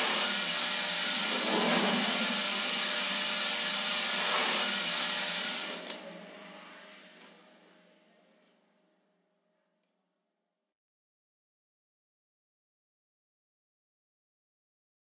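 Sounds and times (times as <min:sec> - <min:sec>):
air hissing from a machine: 0:00.0 - 0:05.9.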